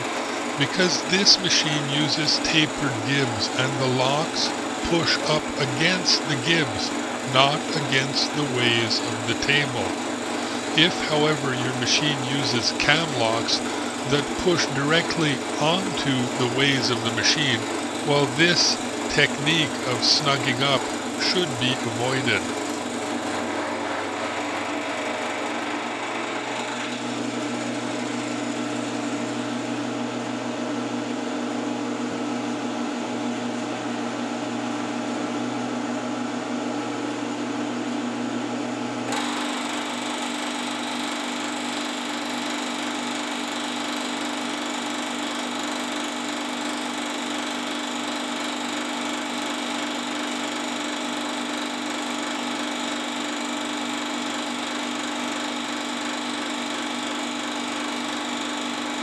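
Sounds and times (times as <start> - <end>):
milling machine motor hum: 0.0 - 29.6, 39.1 - 53.4.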